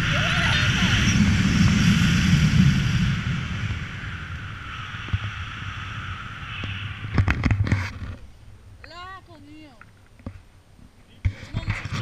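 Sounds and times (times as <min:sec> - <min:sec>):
wind buffeting microphone: 0:00.0 - 0:08.9.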